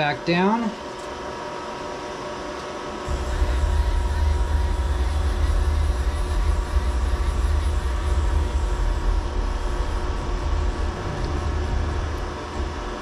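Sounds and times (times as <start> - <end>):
milling machine humming: 1.5 - 13.0
low machine rumble: 2.9 - 13.0.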